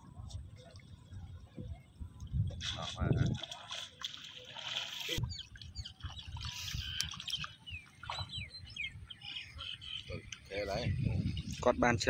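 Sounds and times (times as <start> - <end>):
wind rumbling on microphone: 0.0 - 3.8, 5.2 - 12.0
small birds chirping: 5.1 - 11.6.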